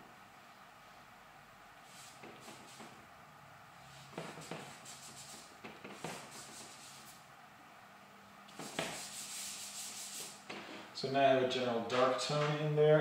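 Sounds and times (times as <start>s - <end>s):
hand rubbing across paper: 1.8s - 3.0s, 3.8s - 7.2s, 8.5s - 10.4s
charcoal scraping on paper: 3.9s - 7.2s, 8.5s - 10.4s.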